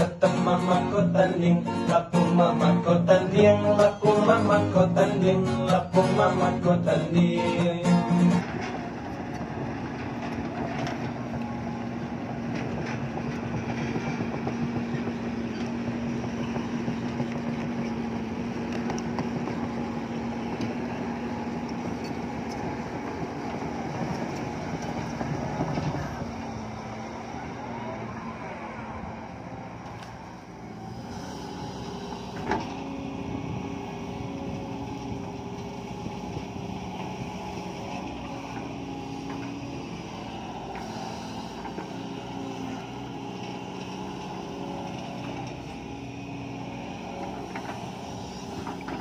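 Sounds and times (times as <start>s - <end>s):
excavator diesel engine running: 0.0s - 49.0s.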